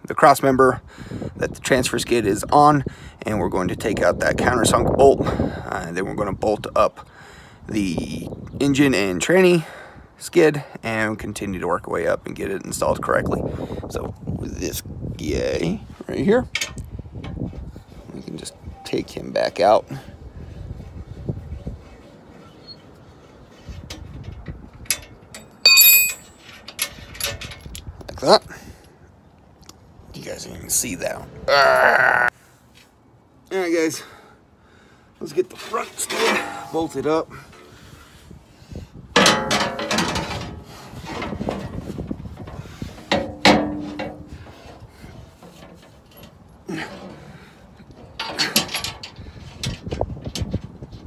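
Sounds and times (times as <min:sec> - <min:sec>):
metal plate clanking and scraping: 0:23.8 - 0:27.7, 0:35.5 - 0:37.9, 0:39.1 - 0:50.8
ringing metal knocks: 0:24.9 - 0:27.4
sharp metal clangs: 0:24.9 - 0:27.7, 0:36.1 - 0:37.7, 0:39.2 - 0:40.6
loud ringing metallic clink: 0:25.4 - 0:26.4.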